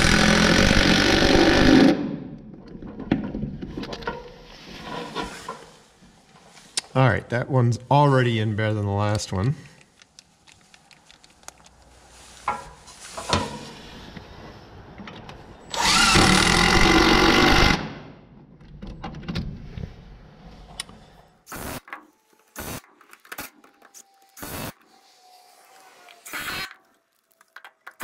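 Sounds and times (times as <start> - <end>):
impact driver driving screw: 15.7 - 17.9.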